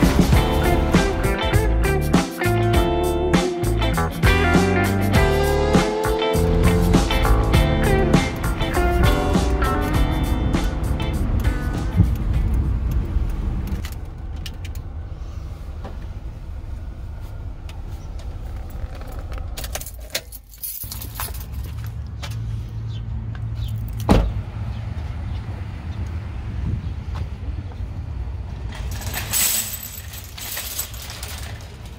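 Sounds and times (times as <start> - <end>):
car engine running: 0.0 - 19.8
keys jangling: 19.0 - 21.9, 28.8 - 31.9.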